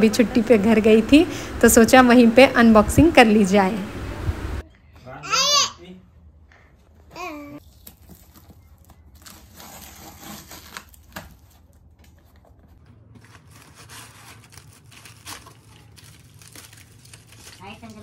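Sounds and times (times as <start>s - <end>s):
packing paper crinkling and tearing: 7.6s - 18.0s.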